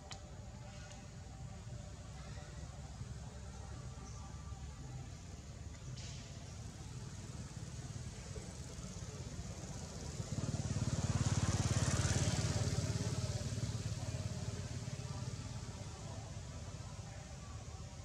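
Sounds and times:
passing vehicle engine: 0:06.0 - 0:16.4.

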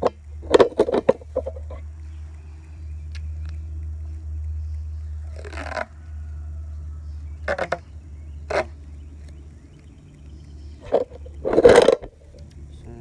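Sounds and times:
tape roll rustling: 0:00.0 - 0:06.3
steady low hum: 0:00.0 - 0:13.0
tape roll scraping: 0:03.2 - 0:06.5, 0:07.4 - 0:09.9.

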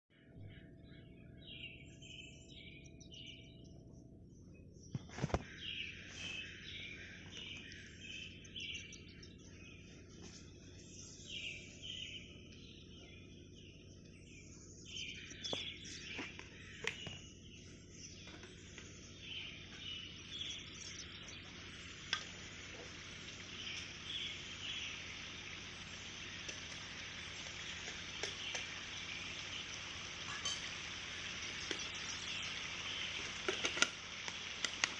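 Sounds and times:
forest birds chirping: 0:00.1 - 0:34.9
steady high hiss: 0:17.5 - 0:34.9.

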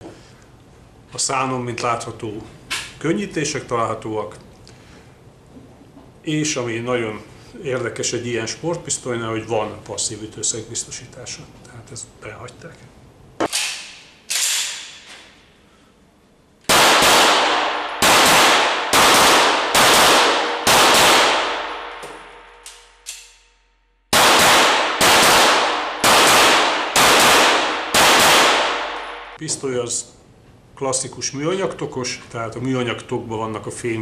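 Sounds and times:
pistol shots ringing indoors: 0:13.4 - 0:15.1, 0:16.6 - 0:29.4.

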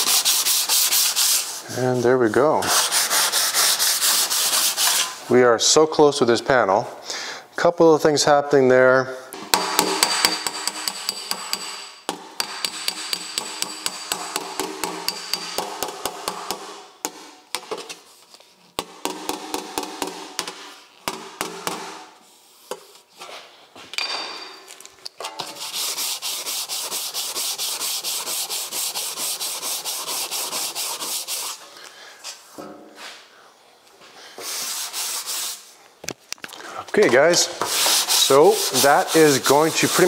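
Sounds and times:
sandpaper rasping on metal: 0:00.0 - 0:05.2, 0:25.4 - 0:31.6, 0:34.4 - 0:35.7, 0:37.6 - 0:40.0.

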